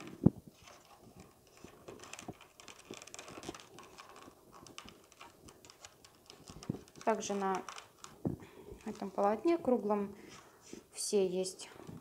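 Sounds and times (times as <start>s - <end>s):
paper tubes tapping on wood: 0.0s - 9.3s
light paper rustling: 0.0s - 12.0s.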